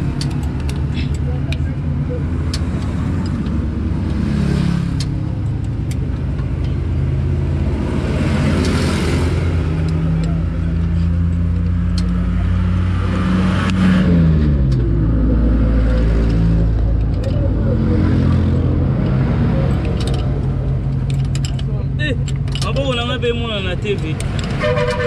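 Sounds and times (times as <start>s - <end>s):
diesel truck engine running: 4.9s - 24.4s.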